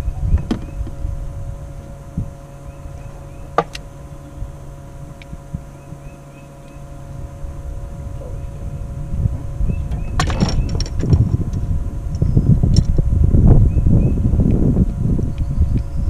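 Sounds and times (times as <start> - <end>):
birds chirping: 0.0 - 16.0
electric outboard motor whining: 0.0 - 16.0
low rumble: 0.0 - 16.0
clatter of knocks: 9.9 - 11.3.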